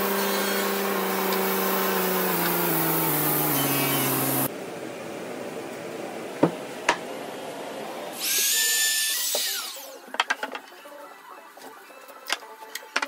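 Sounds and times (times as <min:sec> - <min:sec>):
panel saw running: 0:00.0 - 0:04.5
router high whine: 0:00.0 - 0:04.5.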